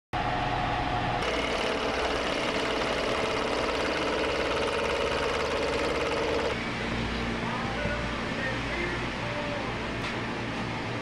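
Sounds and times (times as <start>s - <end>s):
milling machine cutting metal: 1.2s - 6.6s.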